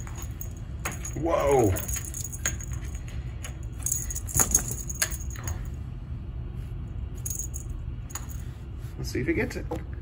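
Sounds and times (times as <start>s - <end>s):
toy rustling against door: 0.0s - 5.8s.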